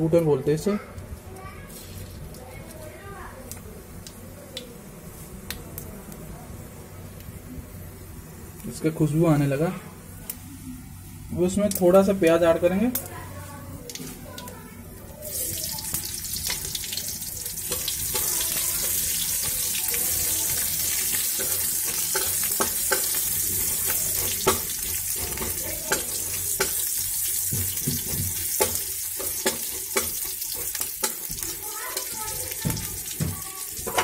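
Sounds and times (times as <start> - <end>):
onion sizzling in hot oil: 1.4 - 34.0
spatula clicking and scraping: 20.5 - 26.9, 27.5 - 34.0.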